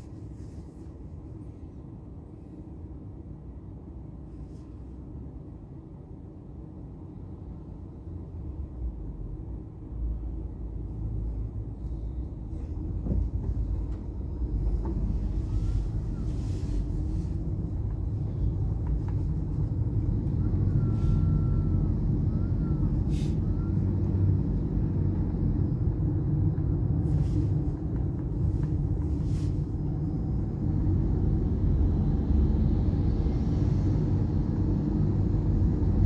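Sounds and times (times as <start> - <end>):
car engine rumble: 0.0 - 36.0
tyres on road: 9.0 - 36.0.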